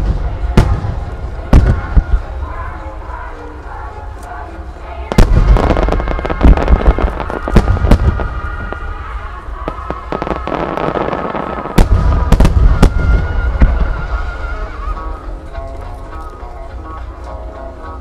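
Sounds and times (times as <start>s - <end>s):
music: 0.0s - 18.0s.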